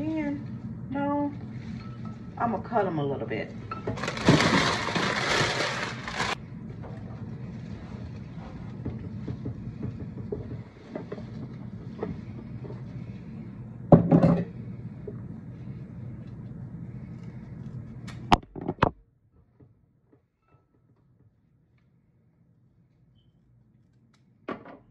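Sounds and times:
steady low hum: 0:00.0 - 0:19.3
stems and leaves rustling: 0:04.0 - 0:06.4.

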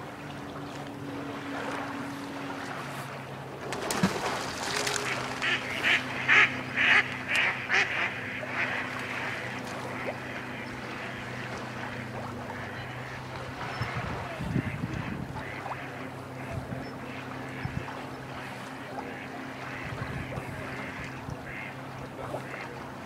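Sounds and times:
steady low hum: 0:00.0 - 0:23.0
duck quacking: 0:05.0 - 0:11.2, 0:19.0 - 0:22.7.

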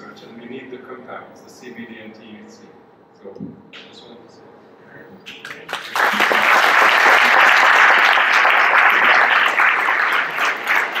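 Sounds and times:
audience applauding: 0:05.4 - 0:11.0.

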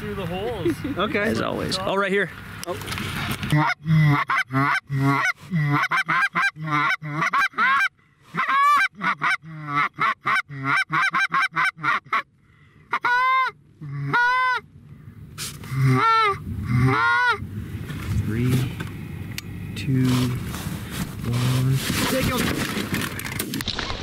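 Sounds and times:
goose honks and clucks: 0:03.5 - 0:12.3, 0:12.9 - 0:14.7, 0:15.7 - 0:17.4.

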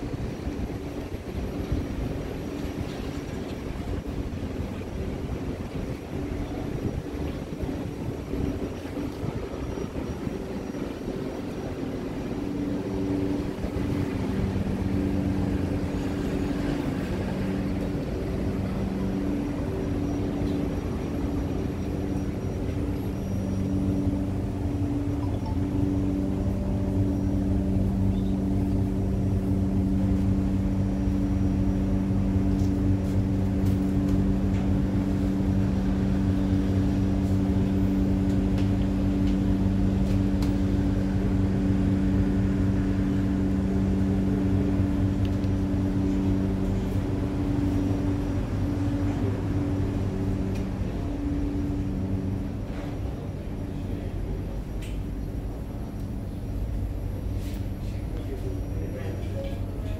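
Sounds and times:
tram hum and rumble: 0:00.0 - 0:59.9
two-tone drone: 0:09.6 - 0:53.3.

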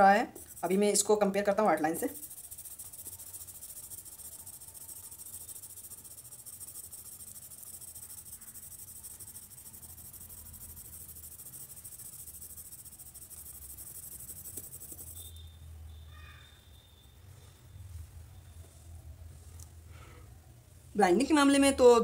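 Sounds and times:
blending stump rubbing on paper: 0:00.4 - 0:01.1, 0:01.8 - 0:15.2.

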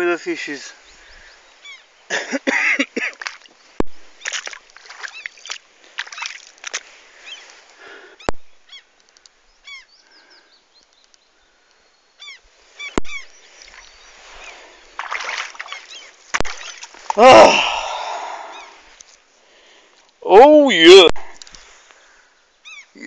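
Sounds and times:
birds honking calls: 0:12.2 - 0:16.9.

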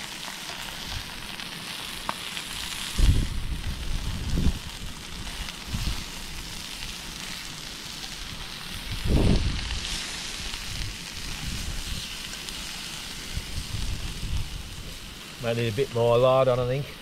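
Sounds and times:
meat sizzling in a pan: 0:00.0 - 0:17.0
wind rumbling on microphone: 0:02.8 - 0:06.8, 0:08.2 - 0:15.2.

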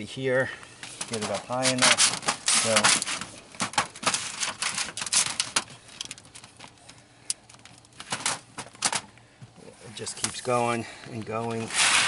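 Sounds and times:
metal sheets crinkling and clicking: 0:00.8 - 0:09.1
quick scraping strokes: 0:11.6 - 0:12.0.

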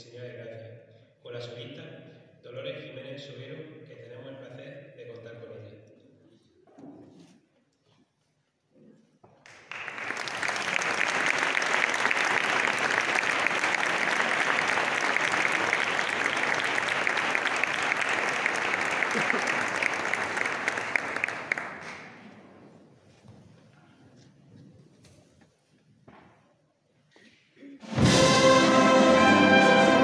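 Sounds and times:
audience applauding: 0:09.4 - 0:22.3.

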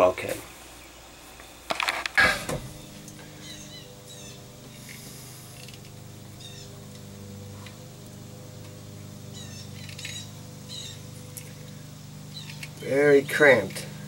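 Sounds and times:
small birds chirping: 0:00.0 - 0:01.7, 0:02.4 - 0:14.0
steady low hum: 0:00.0 - 0:14.0
wire clicking: 0:09.7 - 0:12.9.

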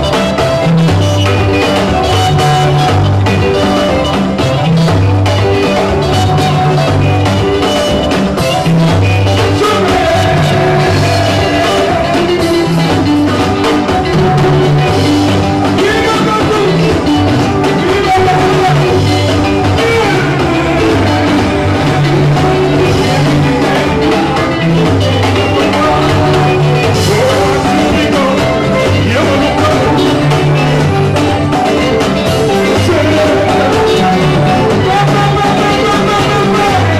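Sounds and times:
conga drums: 0:00.0 - 0:36.9
live band playing dance music: 0:00.0 - 0:36.9
person singing: 0:09.2 - 0:36.9.

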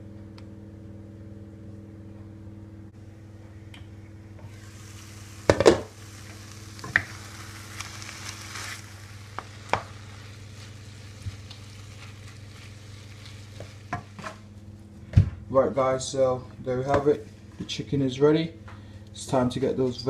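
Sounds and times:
meat and onion sizzling in a pan: 0:04.5 - 0:14.3.

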